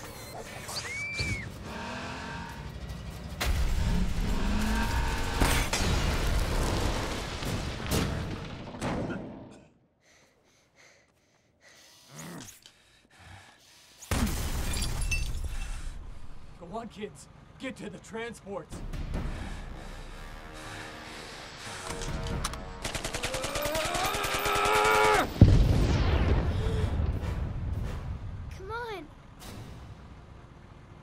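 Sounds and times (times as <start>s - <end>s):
truck engine running hard: 1.4s - 5.7s
music: 18.8s - 23.2s.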